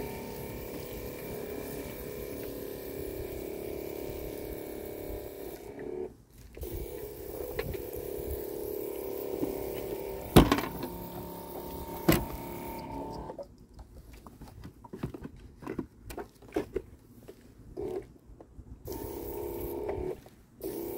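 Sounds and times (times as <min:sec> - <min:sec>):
cordless tool motor humming: 0:00.0 - 0:13.4, 0:18.9 - 0:20.9.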